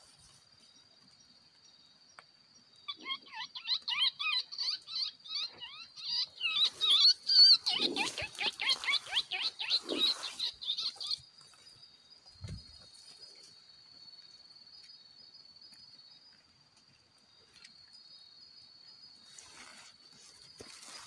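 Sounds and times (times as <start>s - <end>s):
animal chattering call: 2.9s - 11.2s
high insect drone: 5.6s - 21.0s.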